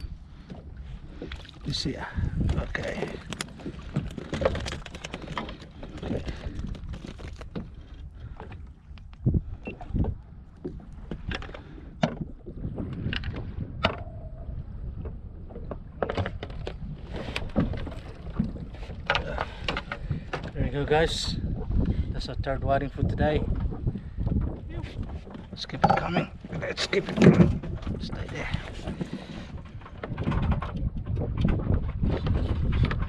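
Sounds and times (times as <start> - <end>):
wind rumble on microphone: 0.0 - 33.0
fishing gear knocking and clicking: 2.4 - 7.7, 25.5 - 28.0.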